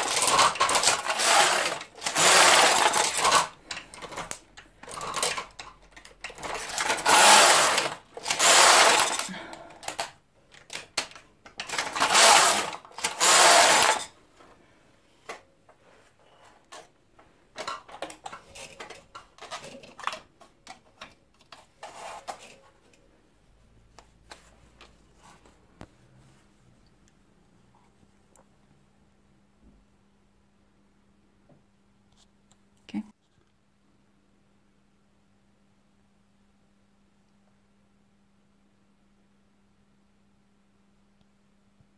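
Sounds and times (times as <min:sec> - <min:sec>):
knitting machine carriage clatter: 0:00.0 - 0:14.2.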